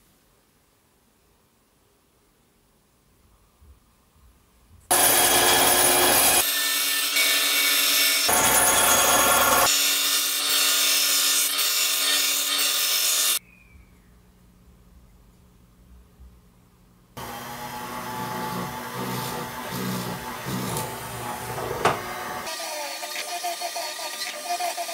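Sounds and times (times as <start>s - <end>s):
band saw cutting wood: 4.9s - 13.4s, 17.2s - 24.9s.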